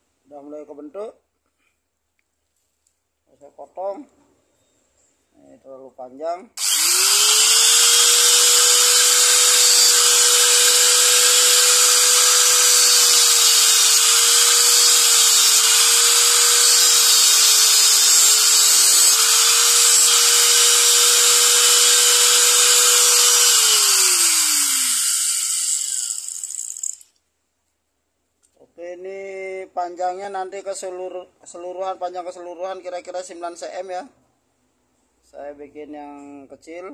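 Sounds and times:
angle grinder cutting wood: 6.6 - 27.0.

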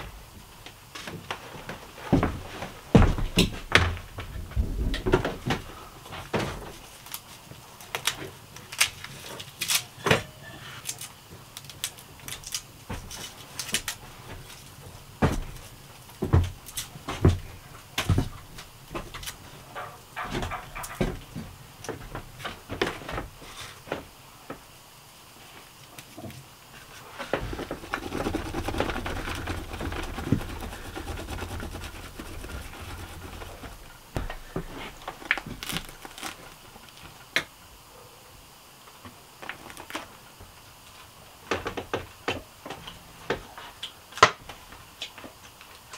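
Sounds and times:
garlic skin peeling crackles: 7.0 - 9.9, 10.8 - 12.7, 27.7 - 37.1
garlic scraping on bread crust: 27.4 - 34.0.

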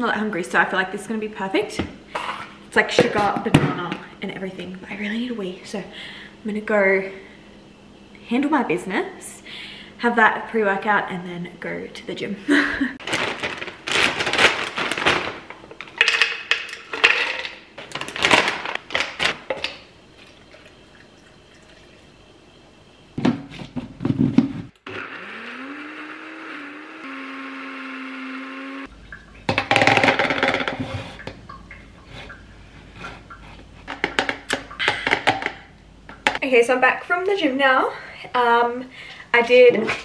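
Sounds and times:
electric blender motor running: 24.8 - 28.9.

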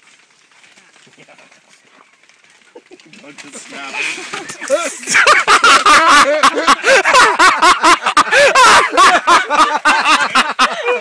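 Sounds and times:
people laughing loudly: 3.9 - 11.0.

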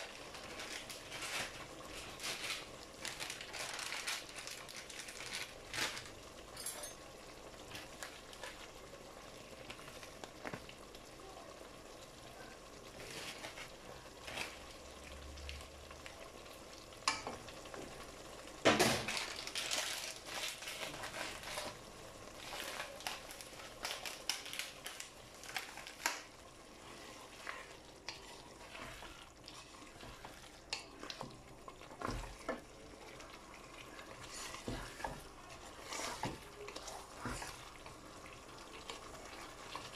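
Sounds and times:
wooden spatula stirring: 0.0 - 6.1, 12.9 - 14.9, 19.2 - 39.9
curry sizzling in a pan: 0.0 - 39.9.

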